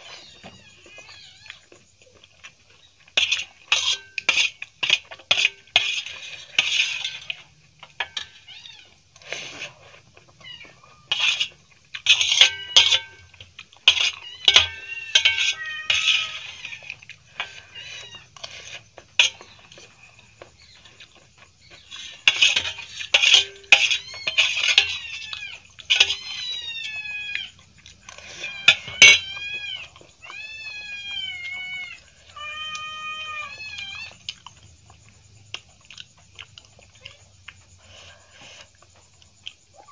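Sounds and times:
cutlery scraping metal plate: 3.2s - 8.5s, 11.0s - 19.8s, 21.7s - 26.4s, 28.0s - 29.6s.

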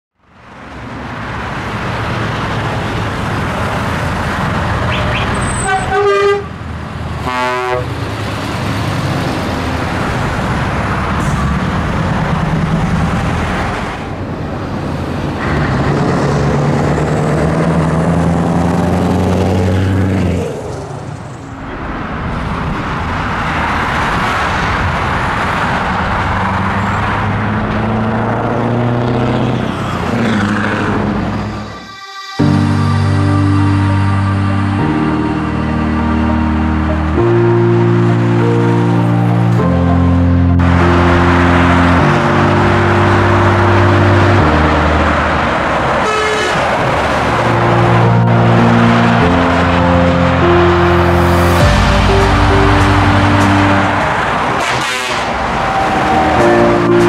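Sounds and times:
diesel truck engines: 0.2s - 57.0s
truck air horn: 4.8s - 8.1s, 46.0s - 47.6s, 50.4s - 57.0s.

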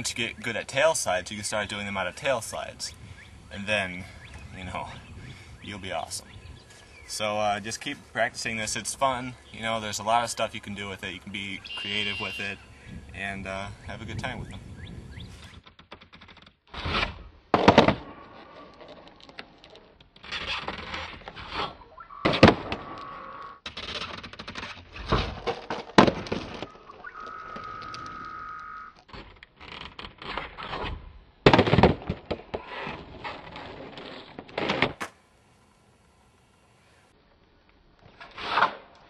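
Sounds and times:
skateboard landing slaps: 16.9s - 18.4s, 22.2s - 23.1s, 34.4s - 35.2s
skateboard wheels rolling: 32.0s - 36.8s.

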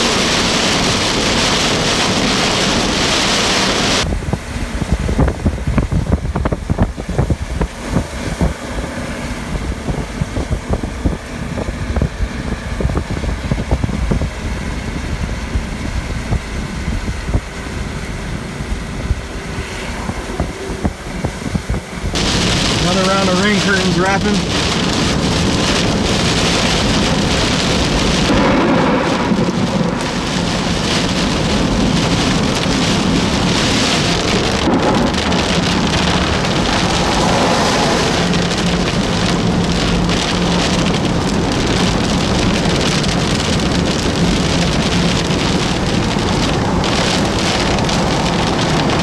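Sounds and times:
heavy rain on car: 0.0s - 19.3s, 20.4s - 49.0s
car low hum: 0.0s - 49.0s.

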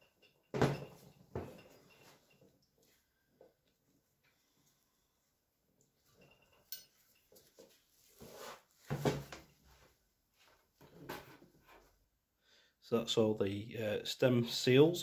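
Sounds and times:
small metal parts clinking: 6.2s - 7.3s.

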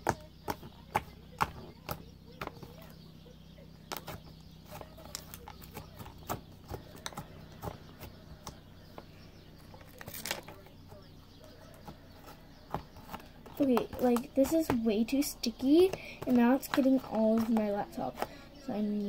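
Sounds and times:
slime crackle: 9.8s - 10.5s.

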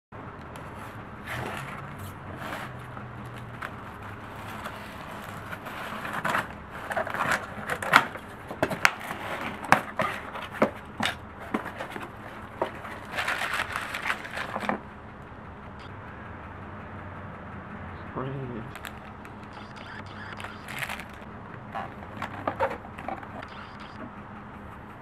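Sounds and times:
cardboard flaps scraping: 0.6s - 14.8s
plastic wrapping rustling: 11.5s - 14.8s, 20.4s - 21.2s.

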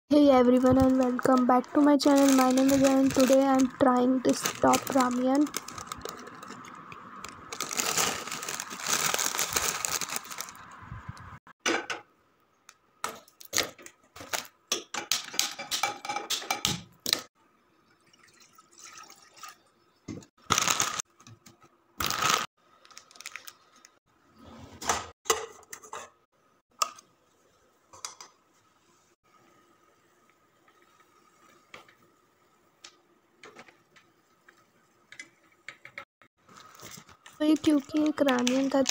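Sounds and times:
plastic packet crinkling: 0.3s - 10.8s, 20.4s - 21.0s, 22.0s - 24.0s, 36.5s - 38.9s.

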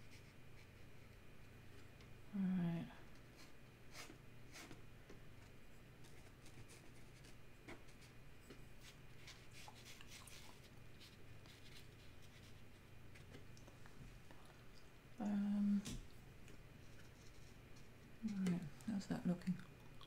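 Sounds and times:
low room hum: 0.0s - 20.0s
brush dabbing paint on paper: 6.1s - 13.4s, 16.8s - 18.4s.

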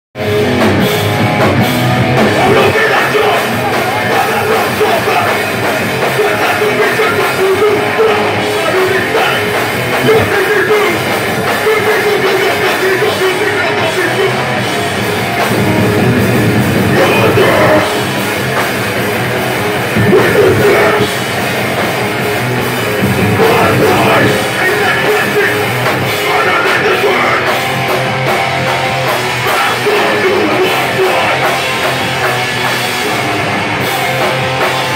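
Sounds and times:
distorted electric guitar: 0.2s - 34.9s
drum kit: 0.2s - 34.9s
person singing: 2.3s - 14.6s, 16.8s - 18.1s, 20.0s - 21.4s, 23.2s - 27.6s, 29.3s - 32.1s.

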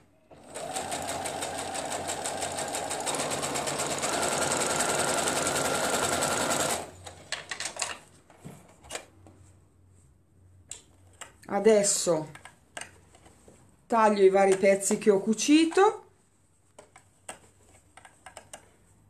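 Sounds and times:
sewing machine stitching: 0.3s - 7.1s.

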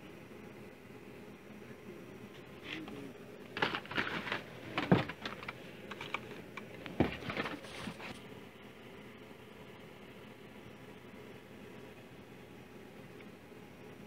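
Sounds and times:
plastic packaging clicking and crinkling: 3.5s - 8.2s.

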